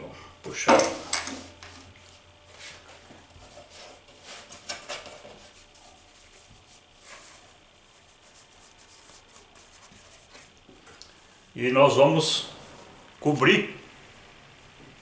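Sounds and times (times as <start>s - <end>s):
dough being handled: 1.5s - 11.0s
cloth rubbing and rustling: 2.0s - 10.7s.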